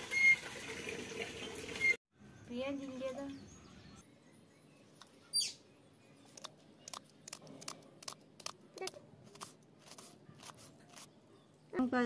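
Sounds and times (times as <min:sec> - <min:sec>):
bird chirp: 0:02.3 - 0:07.4.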